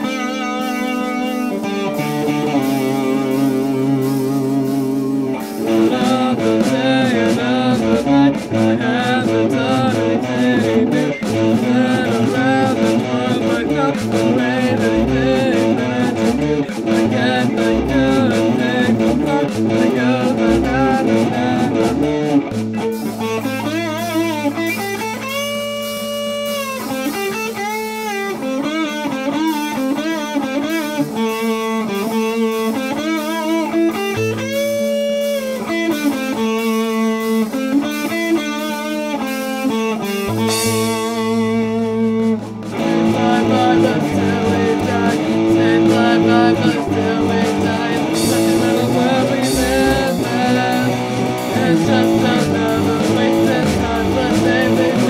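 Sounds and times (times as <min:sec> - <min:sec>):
electric guitar solo: 0:00.0 - 0:55.0.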